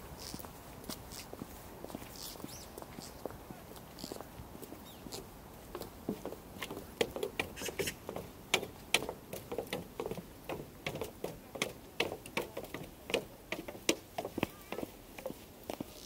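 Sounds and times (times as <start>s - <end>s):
footsteps crunching on snow: 0.0s - 6.4s.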